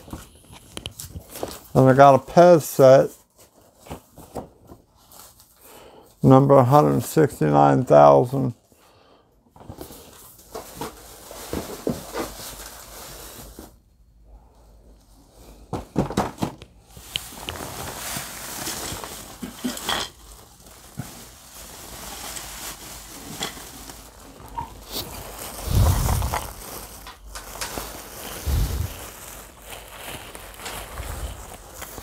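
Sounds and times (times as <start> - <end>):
wrapping paper crinkling: 9.8 - 13.8, 16.9 - 32.0
packaging rustling and clicking: 16.1 - 32.0.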